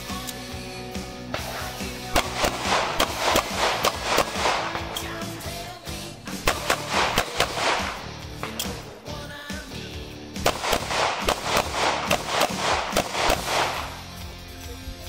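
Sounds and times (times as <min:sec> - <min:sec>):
background music: 0:00.0 - 0:15.0
handgun shots: 0:01.3 - 0:05.4, 0:06.4 - 0:09.0, 0:10.4 - 0:14.1.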